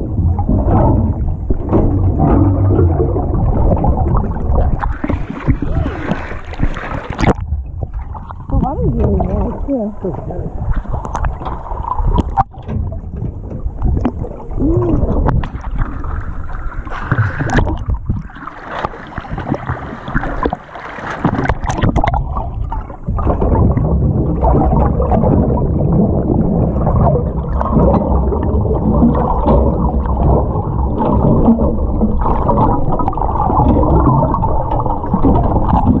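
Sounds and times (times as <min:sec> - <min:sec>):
muffled water sloshing and bubbling: 0:00.0 - 0:36.0
clicks and knocks: 0:00.1 - 0:05.6, 0:10.8 - 0:14.5.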